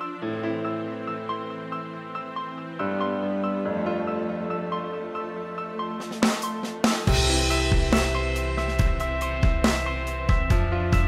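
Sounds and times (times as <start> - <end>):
instrumental background music: 0.0 - 11.0
low drum beat: 7.1 - 11.0.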